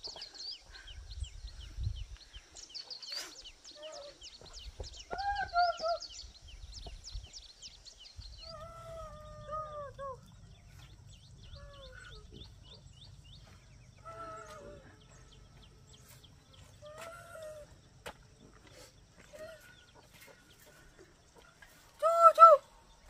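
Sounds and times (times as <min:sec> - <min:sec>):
small birds chirping: 0:00.0 - 0:23.0
farm animal calls: 0:08.5 - 0:17.7.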